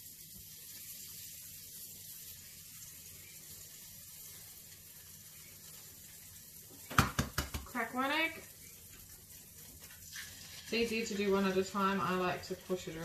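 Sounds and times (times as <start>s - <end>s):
bread sizzling in a pan: 0.0s - 13.0s.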